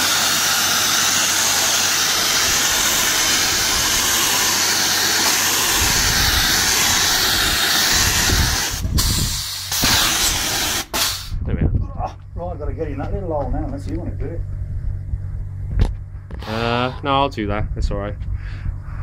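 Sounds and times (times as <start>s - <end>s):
spray gun hissing: 0.0s - 11.4s
low rumble: 11.2s - 19.0s.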